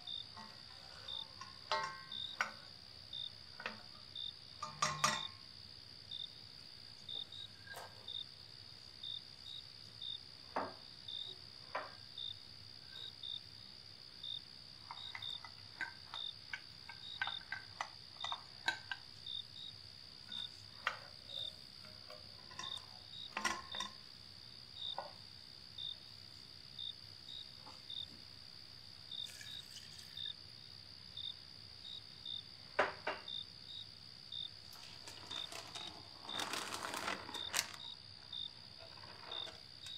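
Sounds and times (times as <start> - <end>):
wooden spoon stirring in steel pot: 0.0 - 2.8, 38.8 - 39.9.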